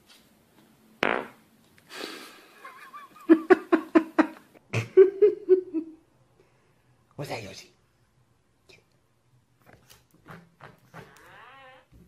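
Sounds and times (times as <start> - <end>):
person laughing: 2.6 - 6.0.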